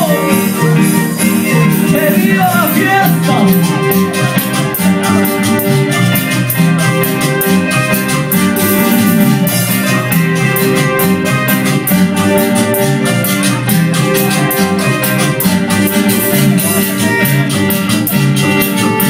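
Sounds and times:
person singing: 0.0 - 4.3
band playing latin dance music: 0.0 - 19.0.

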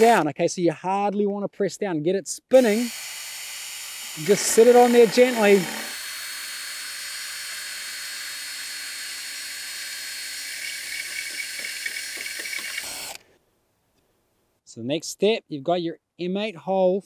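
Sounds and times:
power drill whirring: 0.0 - 0.2, 2.5 - 13.2.

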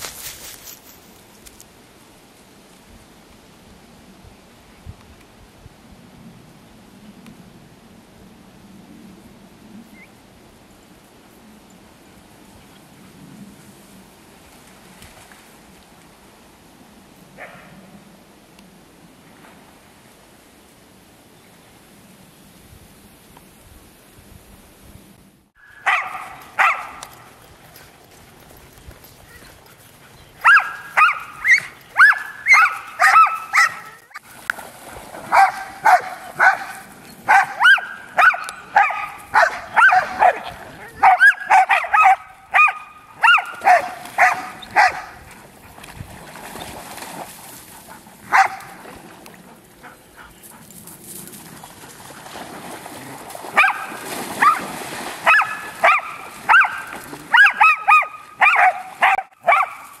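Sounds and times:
dogs barking and yipping: 25.6 - 27.9, 29.3 - 34.3, 35.2 - 45.3, 48.3 - 48.8, 53.5 - 60.0.

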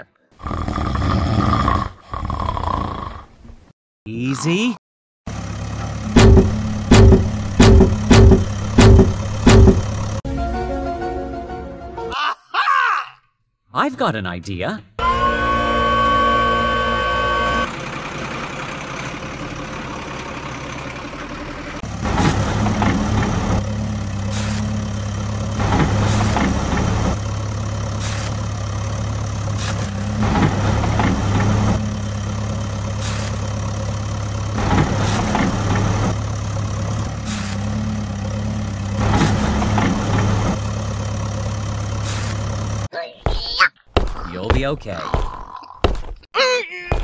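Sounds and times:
excavator engine running: 5.3 - 10.2, 15.0 - 42.9
excavator scooping sand: 21.9 - 27.2, 27.8 - 28.5, 29.3 - 31.8, 32.8 - 33.7, 34.6 - 36.2, 37.0 - 40.6, 41.9 - 42.7.

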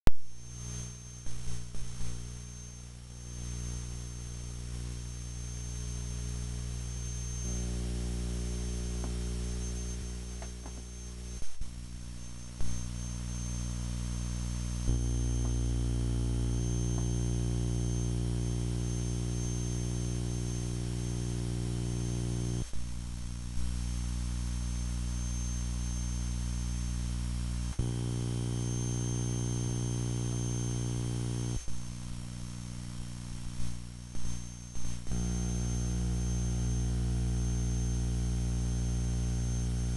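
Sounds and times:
thin high whine: 0.1 - 22.9, 23.5 - 39.9
low droning hum: 0.8 - 24.5, 27.4 - 33.6.

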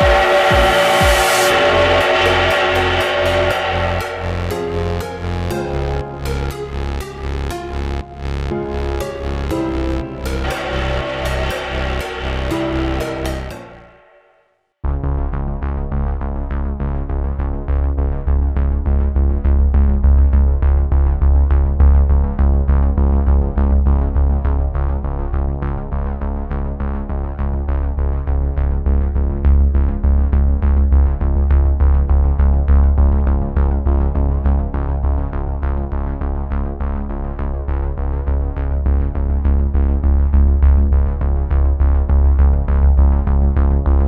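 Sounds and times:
synthesizer music with heavy bass: 0.0 - 7.8, 8.5 - 14.4.

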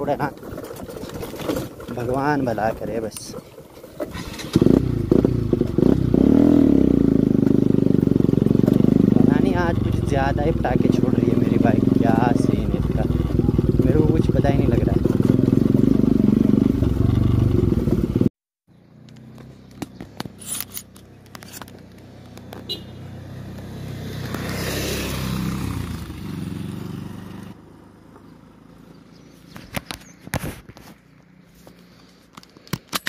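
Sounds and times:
handling clicks and knocks: 0.0 - 4.2, 19.0 - 22.7, 29.5 - 33.0
motorcycle engine idling: 0.0 - 20.4, 21.0 - 23.9, 25.3 - 30.2
motorcycle being ridden: 0.0 - 33.0.

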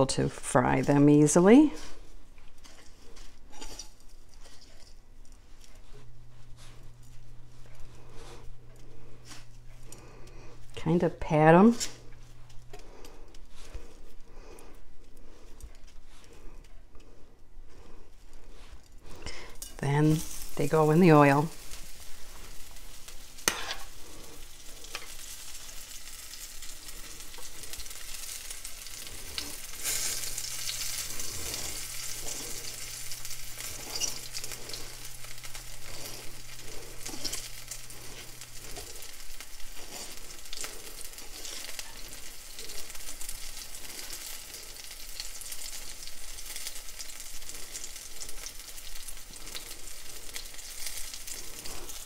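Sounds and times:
patties sizzling in frying pan: 18.6 - 52.0.

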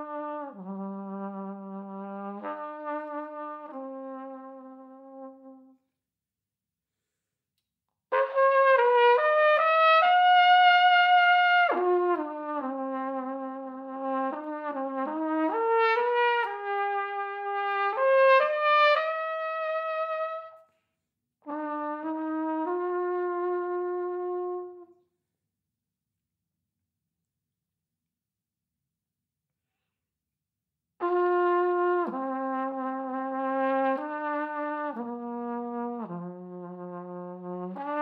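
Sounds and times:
flugelhorn solo: 0.0 - 5.8, 8.1 - 20.7, 21.4 - 25.0, 31.0 - 38.0.

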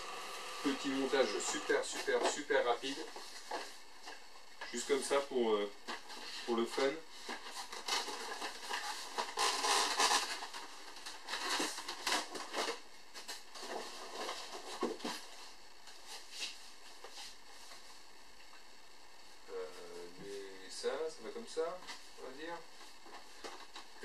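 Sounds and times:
packaging rustling: 7.2 - 15.3.

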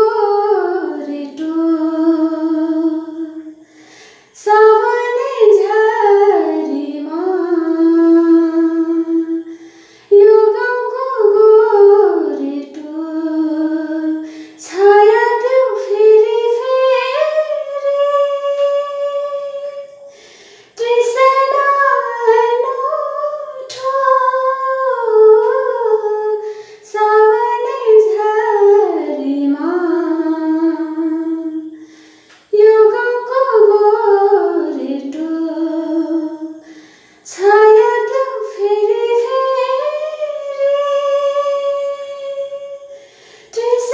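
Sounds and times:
woman singing solo: 43.6 - 43.9.

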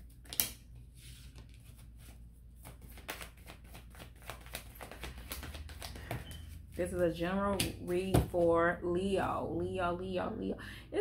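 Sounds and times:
cards being shuffled and laid down: 0.0 - 6.8.

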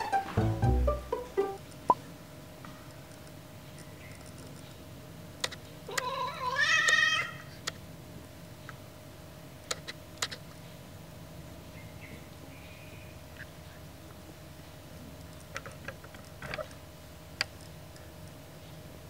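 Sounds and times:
sharp clicks: 5.4 - 6.0, 9.7 - 10.6.

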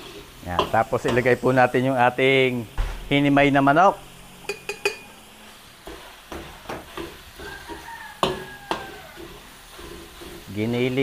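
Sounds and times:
spatula knocking and scraping pan: 0.0 - 1.4, 4.4 - 11.0
meat frying in a pan: 0.0 - 11.0.

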